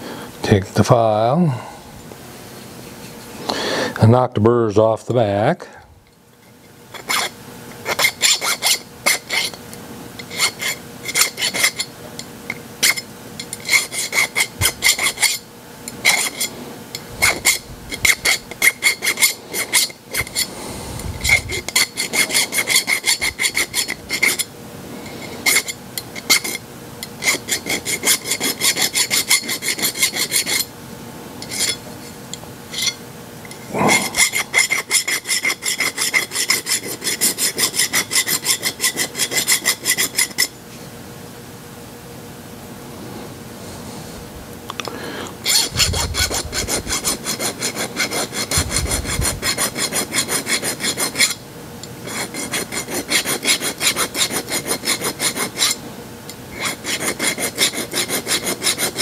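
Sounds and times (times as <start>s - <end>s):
file rasping on metal: 7.0s - 9.6s, 10.2s - 11.9s, 12.8s - 16.5s, 17.2s - 20.5s, 21.2s - 24.5s, 25.1s - 26.6s, 27.2s - 30.7s, 31.4s - 31.8s, 33.6s - 40.5s, 45.4s - 51.4s, 52.0s - 55.8s, 56.5s - 59.0s.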